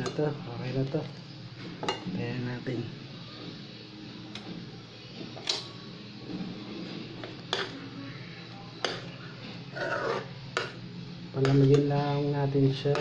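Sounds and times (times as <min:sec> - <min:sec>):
spoon stirring thick syrup: 0:08.8 - 0:10.8.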